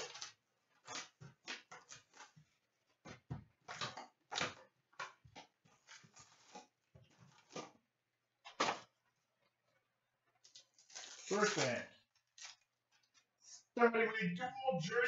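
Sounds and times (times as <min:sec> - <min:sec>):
cardboard scrapes and paper rustles: 0:05.7 - 0:07.7, 0:10.5 - 0:12.6.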